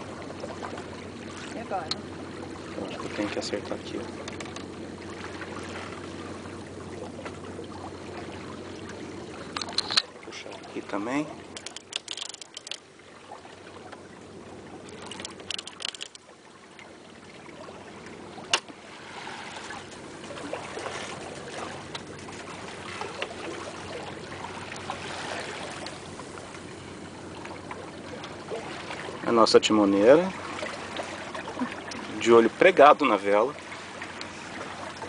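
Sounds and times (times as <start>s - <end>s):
water lapping along boat hull: 0.0s - 35.0s
clicks: 11.6s - 12.8s.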